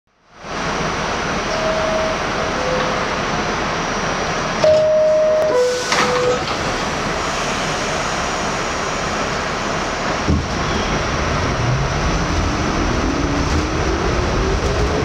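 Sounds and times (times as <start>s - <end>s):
subway car running noise: 0.1s - 15.0s
two-tone door chime: 4.6s - 6.4s
train doors knocking shut: 10.2s - 10.7s.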